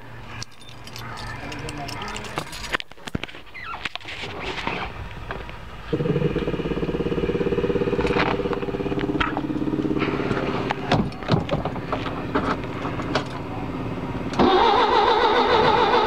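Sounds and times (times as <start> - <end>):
starter motor cranking engine: 14.3 - 16.0.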